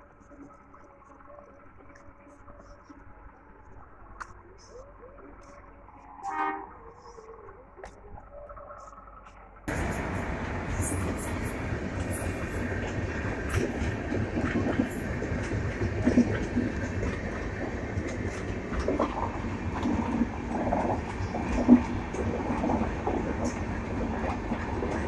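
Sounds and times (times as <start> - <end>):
train wheels rumbling on rails: 9.7 - 25.0.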